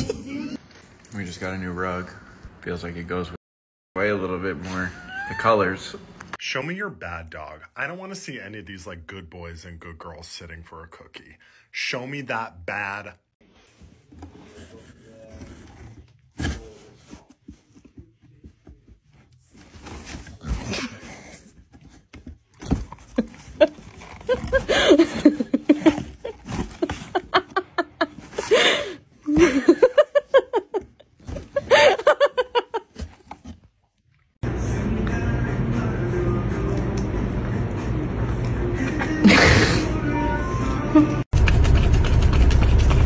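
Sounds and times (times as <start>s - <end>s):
person laughing: 4.7s - 5.7s, 23.1s - 33.2s, 39.2s - 39.9s.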